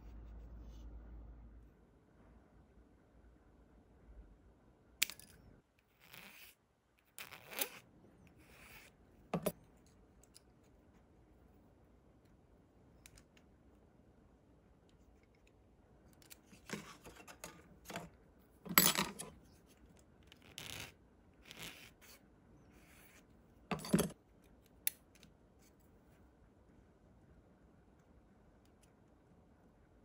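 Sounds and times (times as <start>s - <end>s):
plastic parts scraping and rubbing: 16.2s - 18.2s.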